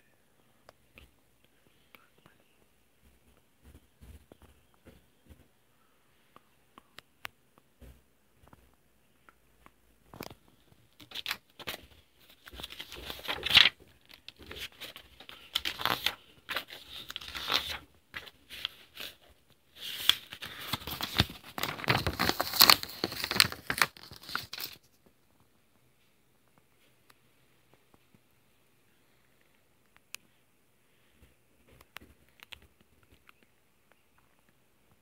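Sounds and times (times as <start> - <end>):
paper pages rustling and crinkling: 10.1 - 24.9.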